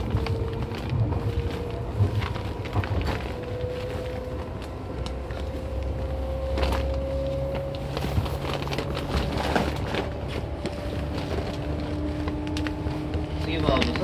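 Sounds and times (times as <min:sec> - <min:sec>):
electric train rumble and whine: 0:00.0 - 0:14.0.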